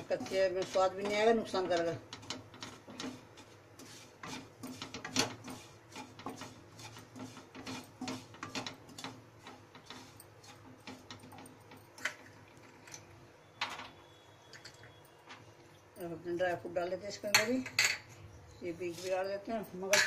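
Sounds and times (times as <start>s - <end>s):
wooden spatula scraping a pan: 0.0s - 11.8s, 18.8s - 20.0s.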